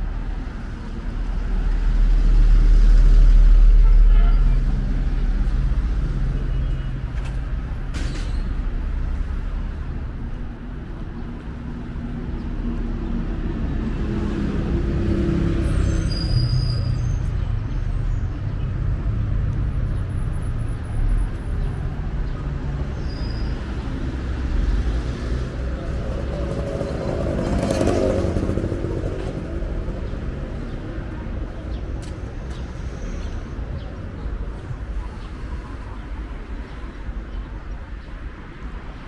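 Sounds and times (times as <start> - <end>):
vehicles passing on street: 0.0 - 39.0.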